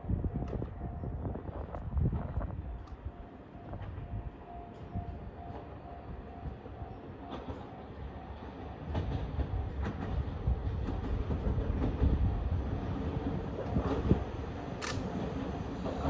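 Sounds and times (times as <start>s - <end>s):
train engine and wheel rumble: 0.0s - 16.0s
sharp clicks: 14.7s - 15.2s.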